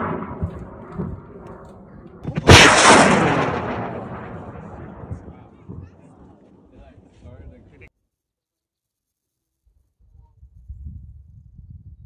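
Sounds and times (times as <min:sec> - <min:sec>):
sharp crack: 0:00.0 - 0:06.4.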